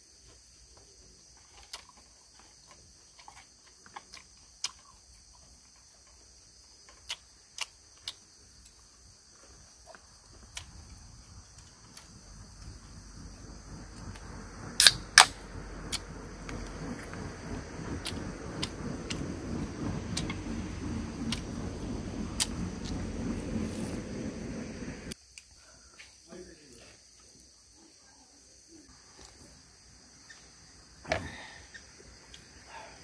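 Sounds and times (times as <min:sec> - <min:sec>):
low rushing noise: 0:10.8 - 0:25.2
sharp loud clicks: 0:14.0 - 0:17.1.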